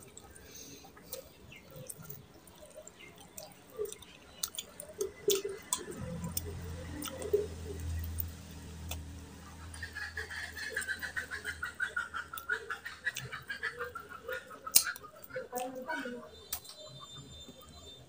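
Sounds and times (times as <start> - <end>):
wet chewing and lip smacks: 0.0 - 9.7, 12.3 - 15.9
low hum: 5.4 - 11.6.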